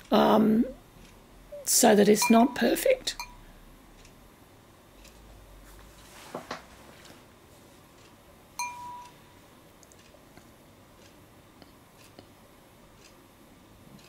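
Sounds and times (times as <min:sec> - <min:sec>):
paintbrush clinking on glass: 0:02.2 - 0:03.4, 0:08.6 - 0:09.1.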